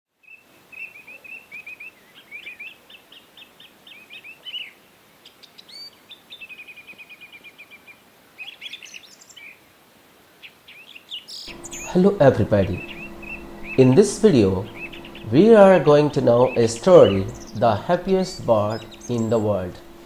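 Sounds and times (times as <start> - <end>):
songbirds chirping: 10.4 - 20.0
bird trill: 11.5 - 20.0
faint hiss: 11.5 - 20.0.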